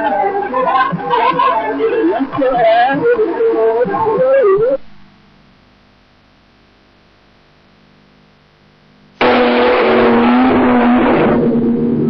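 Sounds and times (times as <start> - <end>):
loud voices: 0.0 - 4.8
faint steady hum: 0.0 - 12.0
low tape hiss: 0.0 - 12.0.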